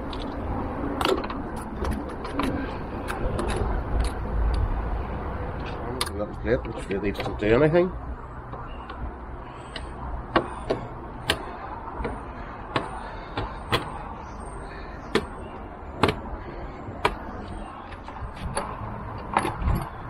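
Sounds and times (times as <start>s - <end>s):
clicks of plastic and metal parts: 1.0s - 4.7s, 6.0s - 7.5s.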